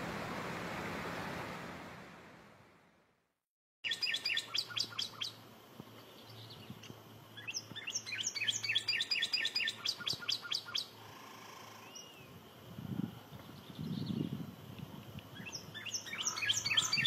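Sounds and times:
bird singing down-slurred whistles: 3.8 - 5.4, 7.4 - 10.9, 15.4 - 17.0.

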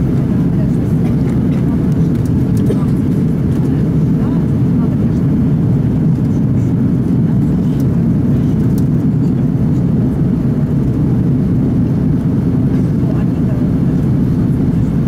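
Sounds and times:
airliner cabin rumble: 0.0 - 15.0.

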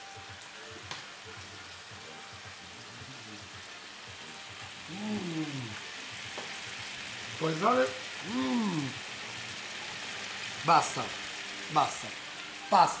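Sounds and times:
food sizzling in frying pan: 0.0 - 13.0
man saying ahh: 3.0 - 3.5, 4.9 - 5.9, 8.2 - 9.0.

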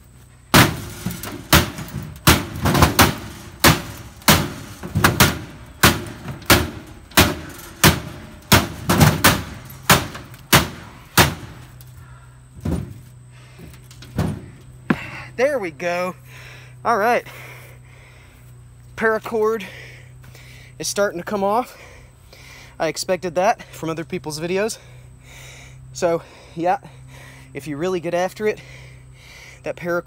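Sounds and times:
axe blade striking sheet metal: 0.5 - 11.6.

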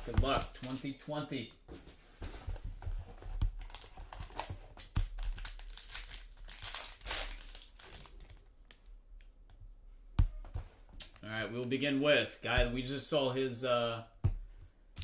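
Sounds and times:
foil wrapper crinkling and tearing: 3.6 - 8.8.

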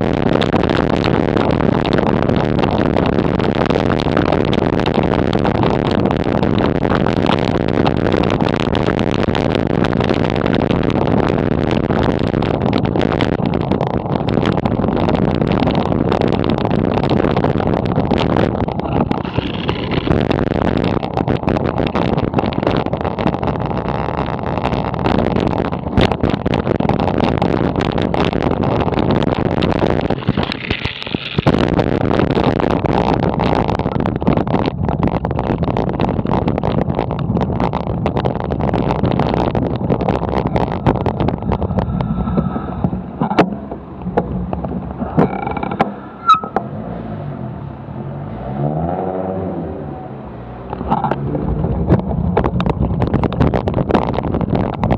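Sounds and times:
bicycle road rumble: 0.0 - 54.9
wind buffeting microphone: 0.0 - 54.9.

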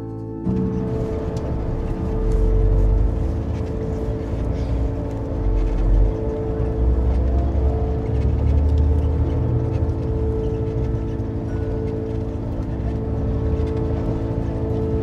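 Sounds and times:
road rumble: 0.0 - 15.0
vehicle engine drone: 0.0 - 15.0.

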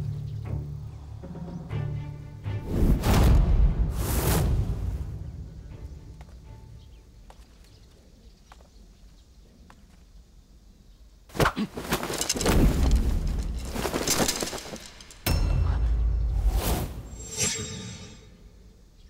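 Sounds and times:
faint footsteps: 5.8 - 10.3.

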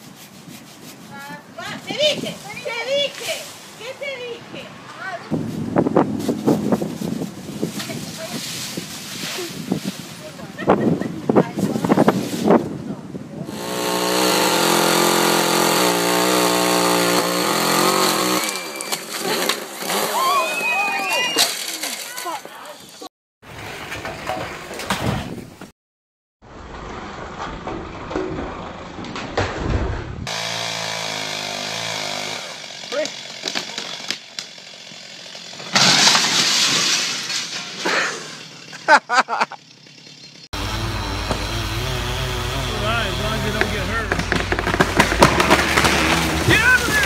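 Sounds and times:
chainsaw engine running: 13.5 - 20.8, 30.3 - 35.8, 38.2 - 47.0
sharp knocks: 42.4 - 47.0
person shouting: 46.4 - 47.0.

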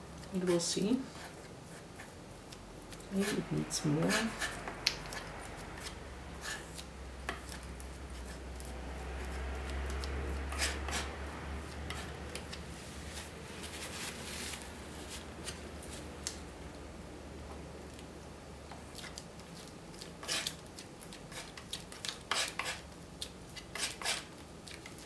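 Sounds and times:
palette knife scraping and tapping: 2.9 - 11.1, 11.7 - 12.6, 20.2 - 25.0.

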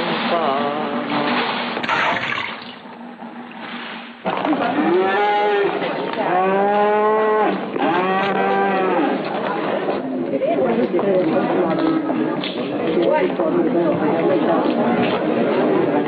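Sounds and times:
water splashing: 0.0 - 4.8
calf mooing: 4.8 - 9.2.

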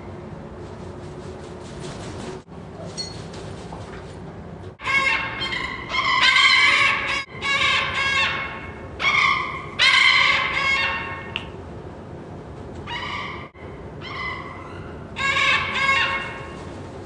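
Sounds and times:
parrots calling: 4.8 - 11.4, 12.9 - 16.6.

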